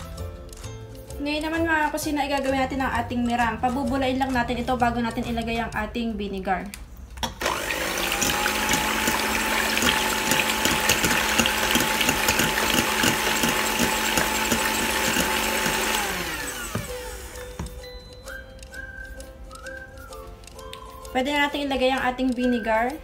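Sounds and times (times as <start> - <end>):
electric hand mixer whine: 7.3 - 18.0
fast rhythmic ticking: 17.1 - 23.0.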